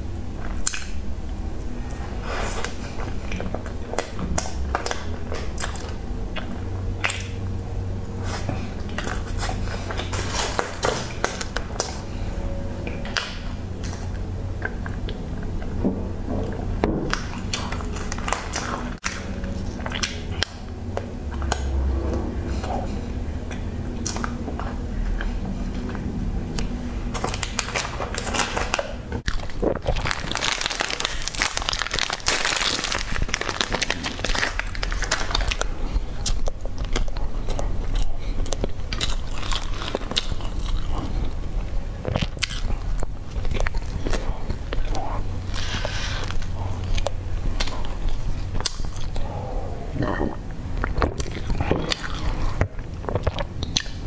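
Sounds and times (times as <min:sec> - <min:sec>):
chewing and wet mouth sounds: 0:00.2 - 0:54.0
plastic wrapper crinkling: 0:27.1 - 0:35.8.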